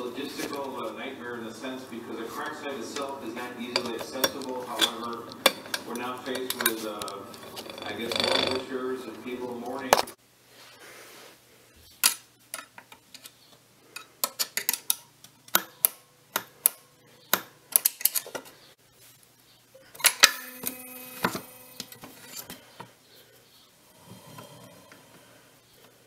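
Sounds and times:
brief ringing tone: 20.4s - 22.0s.

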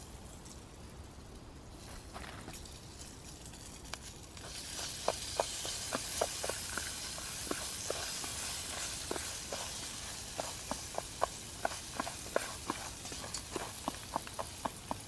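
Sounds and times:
sizzling hiss: 0.0s - 15.0s
popcorn popping: 4.3s - 15.0s.

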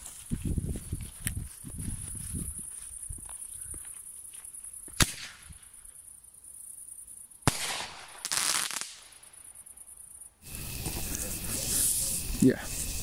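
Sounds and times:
firework crackle: 7.4s - 9.6s, 10.4s - 13.0s.

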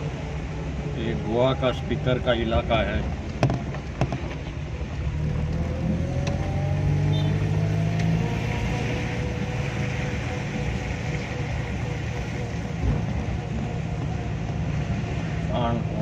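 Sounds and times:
vehicle engine accelerating: 4.9s - 16.0s.

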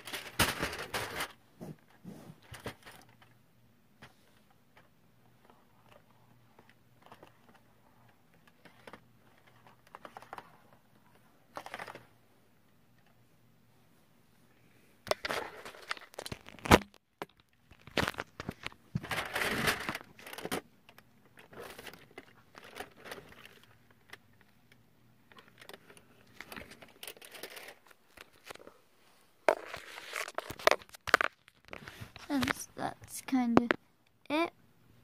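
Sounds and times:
cardboard crinkling and rubbing: 29.4s - 32.8s.

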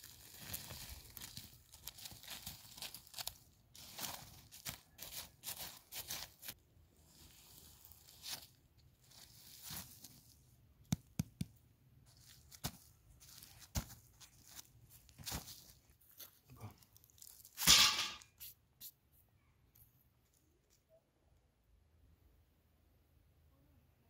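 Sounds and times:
stick scraping dry dirt: 2.8s - 8.6s.

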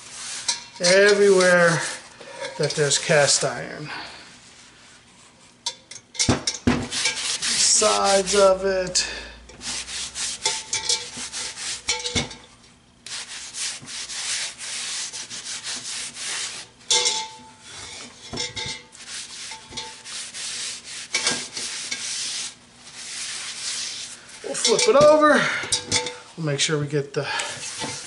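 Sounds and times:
paper towel rubbing cast iron: 0.0s - 3.8s, 6.8s - 12.4s, 13.1s - 25.3s, 27.6s - 28.0s.

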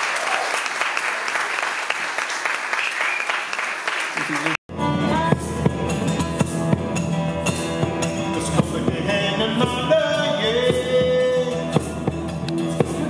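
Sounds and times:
bodhran drum beats: 4.7s - 13.0s
strummed acoustic guitar: 4.7s - 13.0s.

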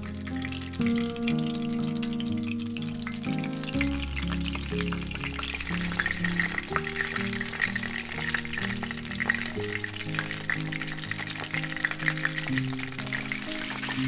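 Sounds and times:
background music: 0.0s - 14.0s
oil sizzling and popping in a pan: 0.0s - 14.0s.

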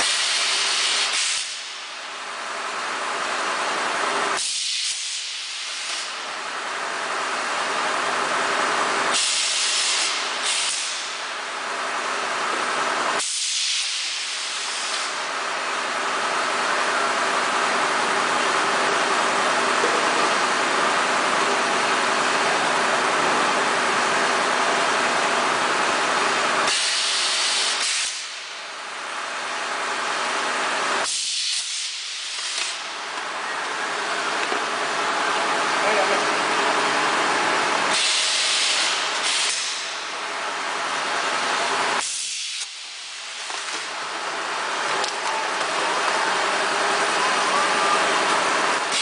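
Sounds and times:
machine air rush and hum: 0.0s - 49.0s
compressed air hisses: 9.2s - 11.1s, 26.7s - 28.3s, 37.9s - 39.9s.

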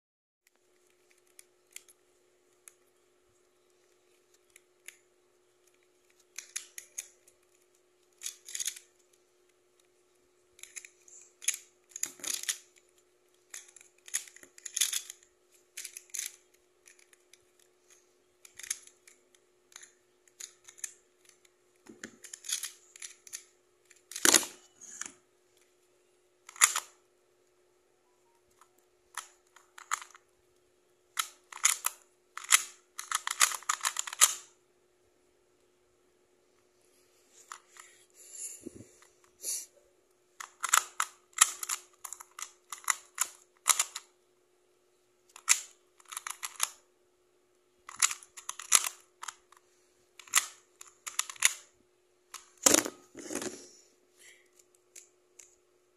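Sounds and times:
plastic puzzle clicking: 0.6s - 2.9s, 3.8s - 9.9s, 10.5s - 25.7s, 26.5s - 27.0s, 28.5s - 30.2s, 31.2s - 34.5s, 40.4s - 44.1s, 45.3s - 46.8s, 47.9s - 49.6s, 50.2s - 51.7s.

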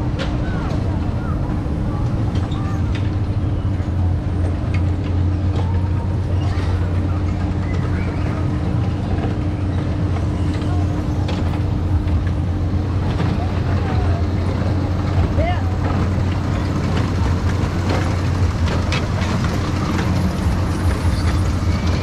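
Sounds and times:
faint voices: 0.0s - 22.0s
low mechanical hum: 0.0s - 22.0s.

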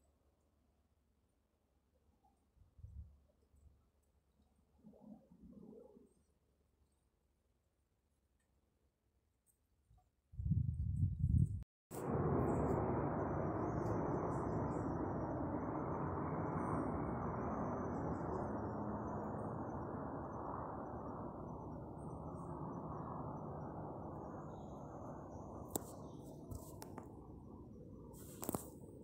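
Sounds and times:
helicopter flying: 11.9s - 29.0s.

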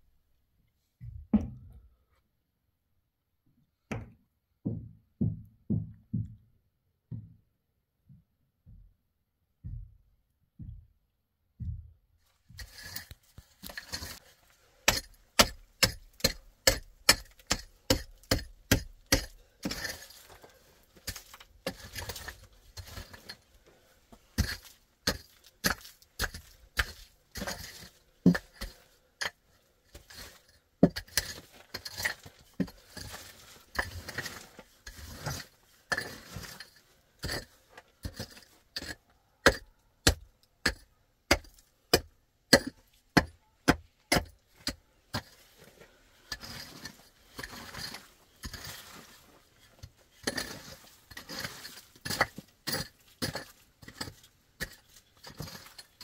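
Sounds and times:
dull low thuds: 1.0s - 1.8s, 3.9s - 12.6s
hoe chopping into stony earth: 14.9s - 20.3s, 24.4s - 28.8s.

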